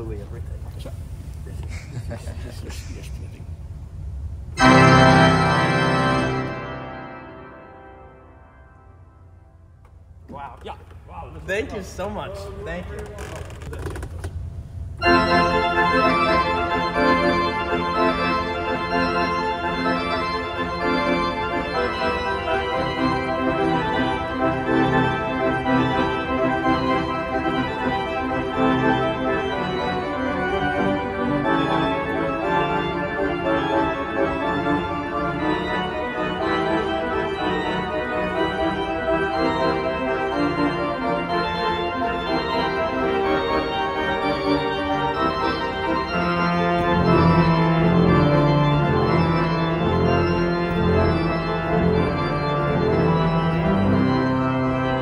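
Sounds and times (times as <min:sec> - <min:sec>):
church pipe organ playing: 0:04.5 - 0:09.8, 0:15.0 - 0:55.0.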